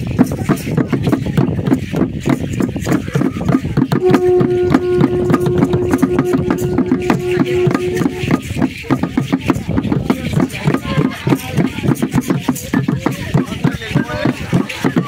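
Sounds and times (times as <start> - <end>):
frame drum beating: 0.0 - 15.0
long blown note: 4.0 - 8.6.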